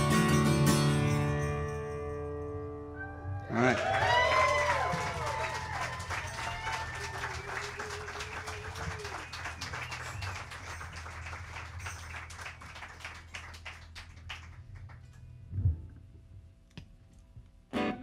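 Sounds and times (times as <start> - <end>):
small audience clapping: 3.5 - 15.2.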